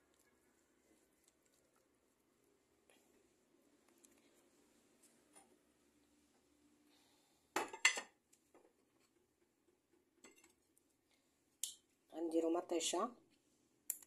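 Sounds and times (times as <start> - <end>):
kitchenware clattering: 7.6 - 8.2.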